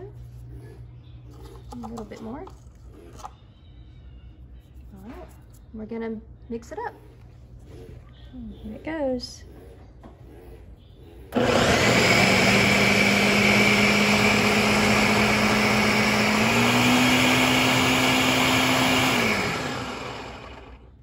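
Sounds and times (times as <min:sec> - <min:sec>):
blender running: 0:11.3 - 0:21.0.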